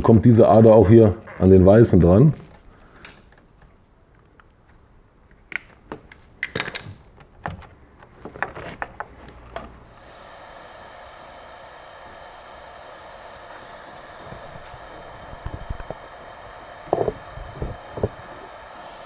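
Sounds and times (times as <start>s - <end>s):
gas soldering iron hissing: 9.8s - 19.0s.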